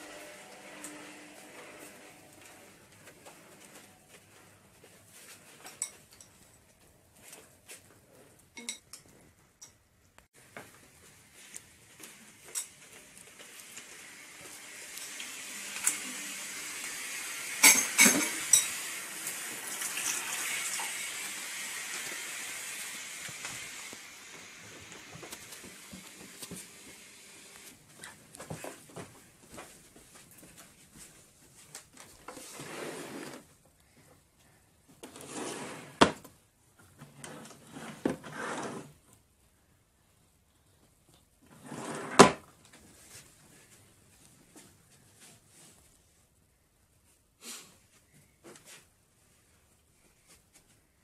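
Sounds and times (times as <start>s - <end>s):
bowl and spoon clinking: 8.6s - 9.0s, 17.6s - 18.8s.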